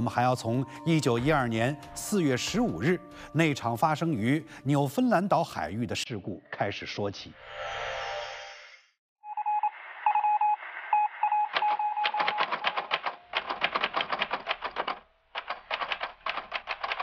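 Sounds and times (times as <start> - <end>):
morse code beeping: 9.3 - 12.8
typewriter keys clattering: 12.2 - 17.0.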